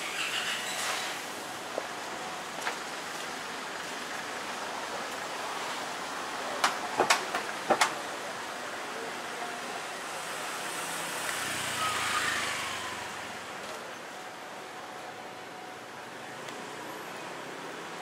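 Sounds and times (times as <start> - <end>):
street traffic noise: 0.0 - 18.0
motorbike passing close by: 11.0 - 13.4.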